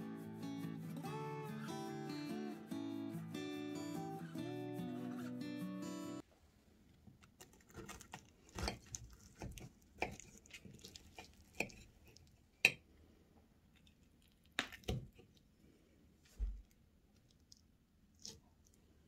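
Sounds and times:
flaky pastry crackling: 7.3s - 12.7s.

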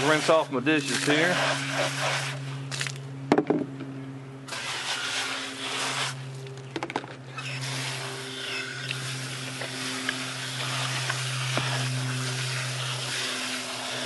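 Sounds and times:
steady low hum: 0.0s - 14.0s
water spraying into plastic basin: 4.5s - 6.4s, 7.4s - 14.0s.

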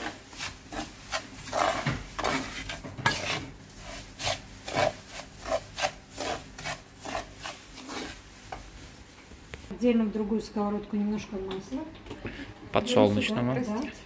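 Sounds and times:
spoon scraping frying pan: 0.0s - 8.7s
grain frying in oil: 0.0s - 9.8s.

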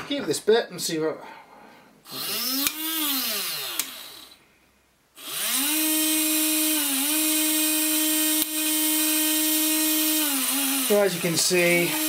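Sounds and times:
toy motor whining: 2.1s - 4.4s, 5.2s - 12.0s.

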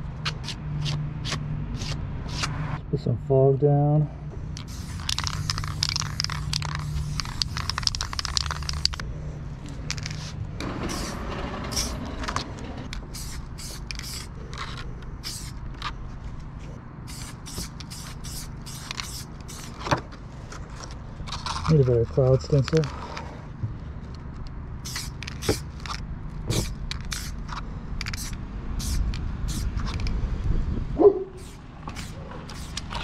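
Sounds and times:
spray paint can hissing: 0.4s - 2.5s, 4.6s - 9.0s, 9.9s - 15.9s, 17.0s - 19.8s, 24.8s - 30.1s, 31.3s - 33.0s.

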